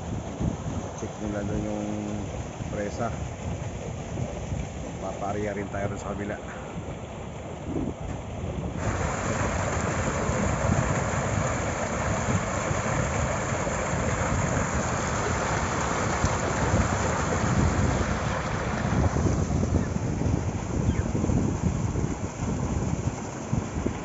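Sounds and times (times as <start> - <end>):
water rushing through sluice gate: 0.1 - 7.6, 8.7 - 24.0.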